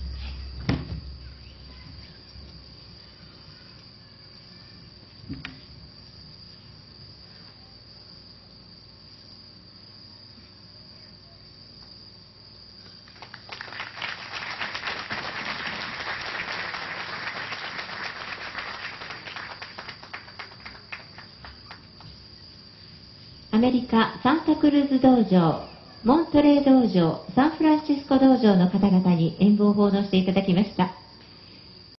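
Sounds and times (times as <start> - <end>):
crickets chirring: 0.0 - 31.9
audience applause: 13.1 - 22.2.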